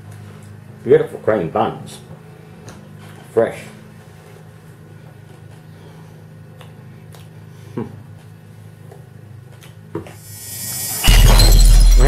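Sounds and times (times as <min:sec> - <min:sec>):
low hum: 0:10.2 - 0:12.0.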